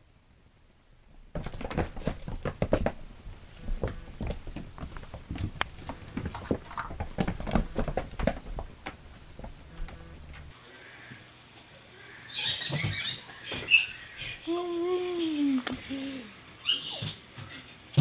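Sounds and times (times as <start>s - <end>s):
kittens scampering on carpet: 1.3s - 10.5s.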